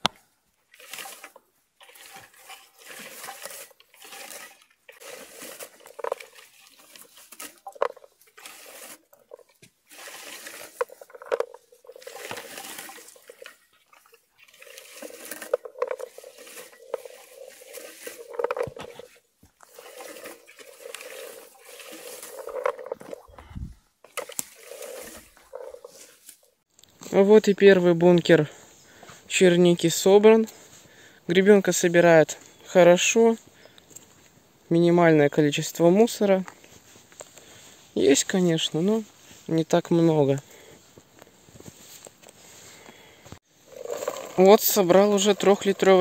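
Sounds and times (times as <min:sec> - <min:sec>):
berry comb scraping through bushes: 0:00.7 - 0:27.2, 0:43.6 - 0:46.0
berries rattling into hopper: 0:00.8 - 0:23.5, 0:43.6 - 0:46.0.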